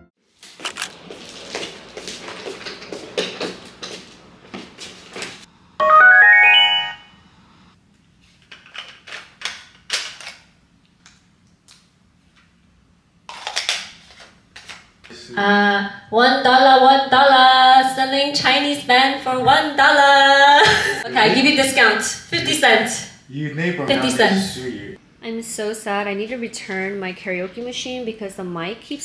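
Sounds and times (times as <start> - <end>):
speaker start-up chime: 5.8 - 7.2.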